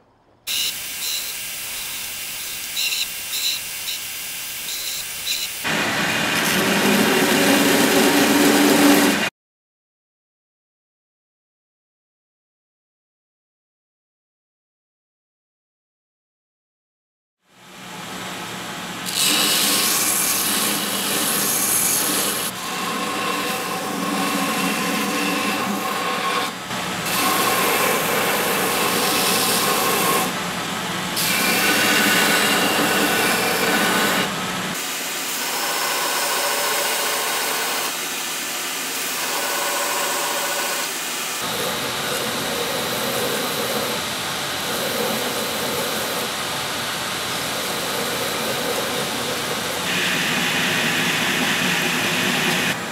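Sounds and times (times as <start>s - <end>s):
belt grinder grinding: 0.5s - 9.3s, 19.1s - 30.4s, 31.2s - 38.0s
grinder motor hum: 4.6s - 9.3s, 31.2s - 34.8s, 47.4s - 52.9s.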